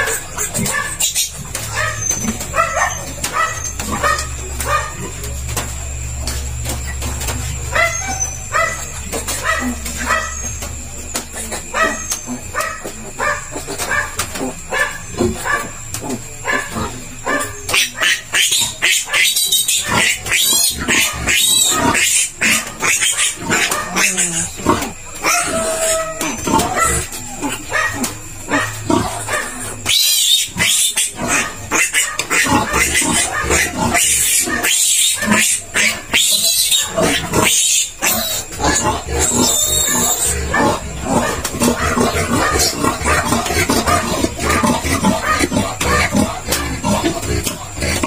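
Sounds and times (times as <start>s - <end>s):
piglet squealing: 0.0s - 4.9s, 16.6s - 48.0s.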